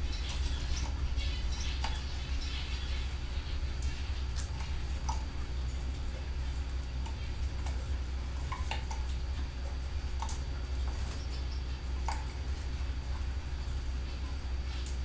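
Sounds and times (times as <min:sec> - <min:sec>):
canaries chirping: 0:00.0 - 0:05.2
steady low rumble: 0:00.0 - 0:15.0.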